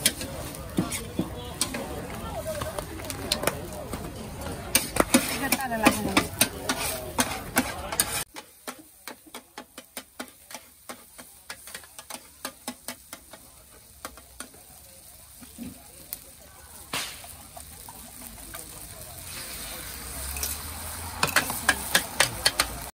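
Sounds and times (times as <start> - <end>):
voices: 0.0 - 22.9
metal spatula clanging on wok: 4.7 - 14.5, 20.3 - 20.6, 21.2 - 22.9.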